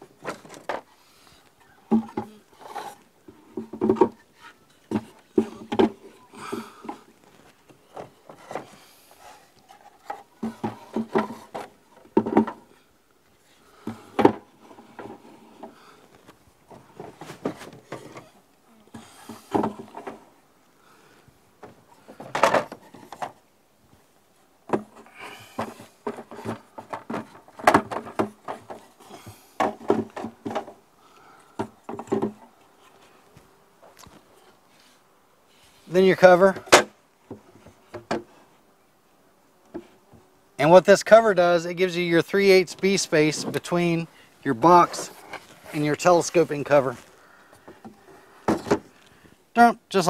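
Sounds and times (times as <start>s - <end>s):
wooden knocks and scrapes: 1.9s - 12.7s, 24.7s - 30.8s, 31.6s - 33.0s.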